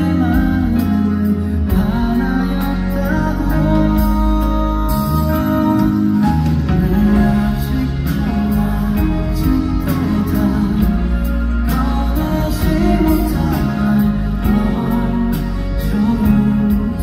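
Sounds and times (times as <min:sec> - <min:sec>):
man singing into microphone: 0:00.0 - 0:17.0.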